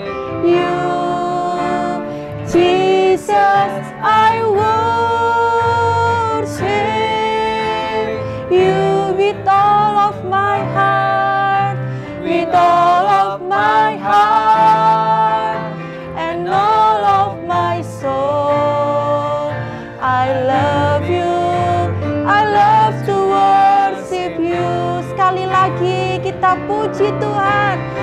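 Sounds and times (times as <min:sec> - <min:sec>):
instrumental backing: 0:00.0 - 0:28.0
woman and man singing: 0:00.0 - 0:28.0.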